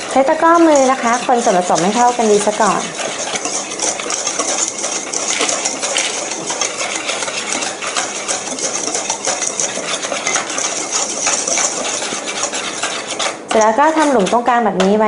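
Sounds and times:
whisk scraping metal bowl: 0.0s - 15.0s.

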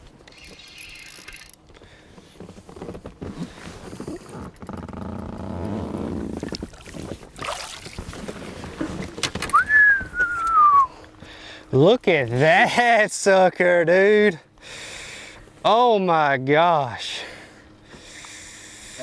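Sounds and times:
fish thrashing in water: 6.3s - 9.2s
falling whistle: 9.5s - 10.9s.

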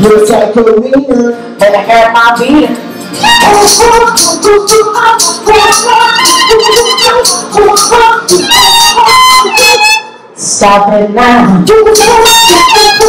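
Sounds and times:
person singing: 3.2s - 13.0s.

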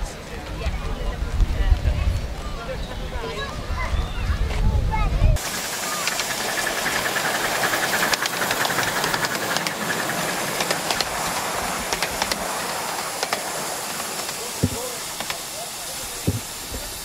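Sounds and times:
miniature steam locomotive hissing: 5.3s - 17.0s
train wheels clicking on track: 5.4s - 17.0s.

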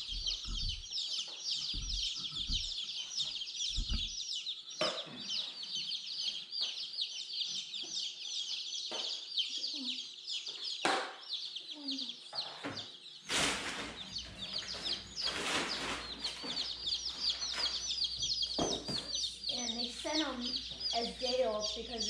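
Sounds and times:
low thumps: 0.0s - 0.9s, 1.6s - 2.7s, 3.7s - 4.2s
baby chicks peeping: 0.0s - 22.0s.

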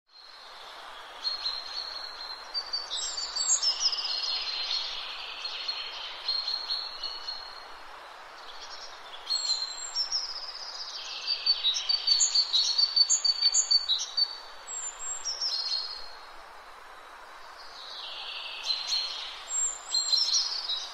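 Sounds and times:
background hiss: 0.2s - 20.9s
songbird twittering: 8.6s - 16.0s.

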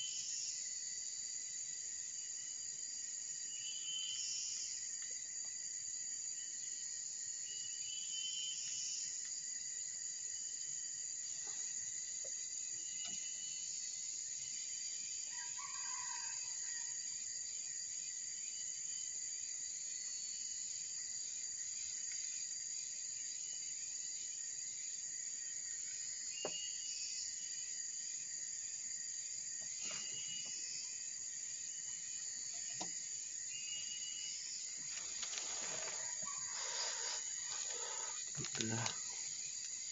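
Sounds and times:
high insect drone: 0.0s - 39.9s
low animal call: 35.7s - 39.2s.

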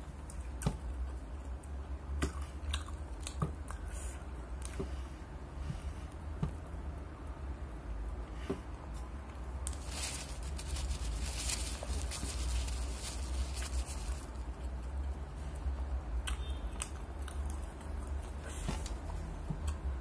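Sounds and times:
person chewing crunchy food: 2.2s - 4.8s.

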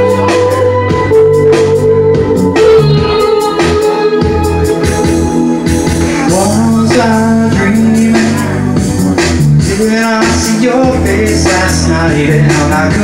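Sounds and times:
bass: 0.0s - 13.0s
electric guitar: 0.0s - 13.0s
steady drum beat: 0.0s - 13.0s
man singing: 5.9s - 13.0s.

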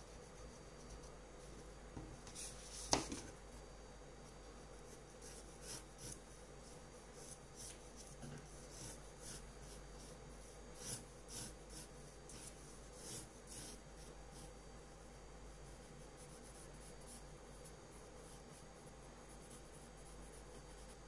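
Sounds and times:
pencil drawing on paper: 4.5s - 21.0s.

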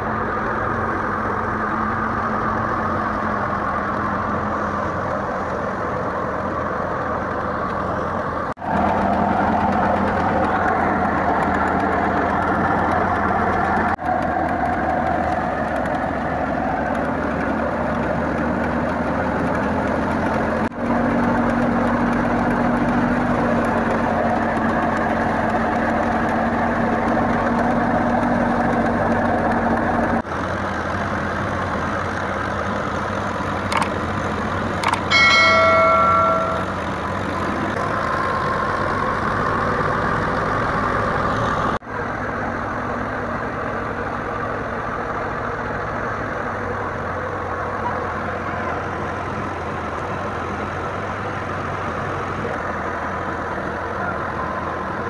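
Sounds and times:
diesel tractor engine running: 0.0s - 55.0s
loud ringing tone: 35.1s - 37.0s.

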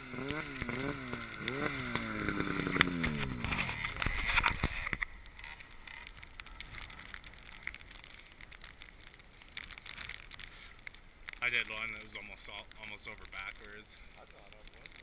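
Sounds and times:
snowmobile engine revving: 0.0s - 4.8s.

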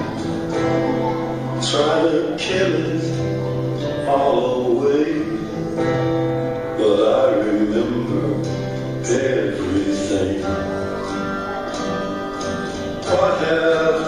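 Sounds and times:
acoustic string instrument strumming: 0.0s - 14.0s.

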